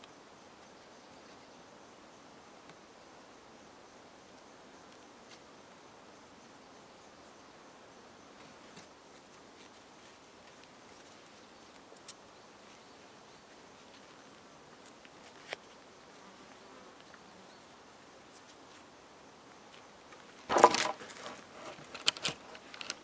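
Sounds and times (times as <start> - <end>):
cord rustling: 20.5 - 23.0.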